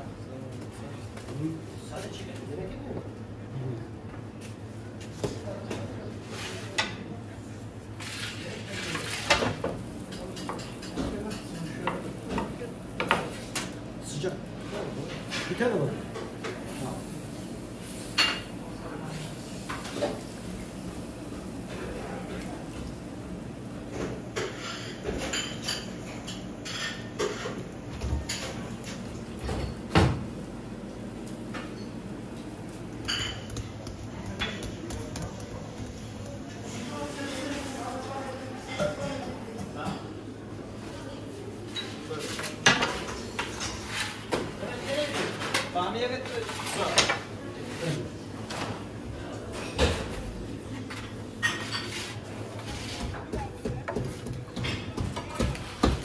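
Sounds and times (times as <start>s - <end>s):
utensils and dishes clattering: 8.0s - 13.8s, 23.9s - 29.9s, 31.5s - 37.7s, 41.7s - 44.4s, 50.8s - 56.0s
metal utensils clinking on dishes: 33.0s - 33.7s.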